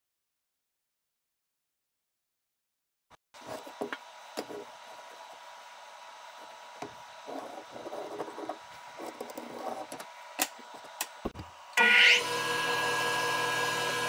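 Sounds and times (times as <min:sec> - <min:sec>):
pencil scratching: 0:07.3 - 0:09.9.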